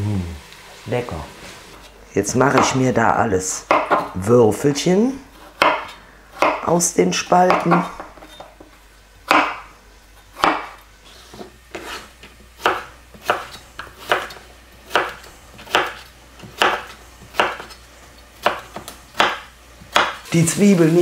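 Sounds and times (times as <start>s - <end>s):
knife chopping on wooden board: 2.5s - 2.8s, 3.7s - 4.1s, 5.4s - 6.7s, 7.4s - 8.4s, 9.2s - 9.7s, 10.3s - 17.8s, 18.4s - 20.2s.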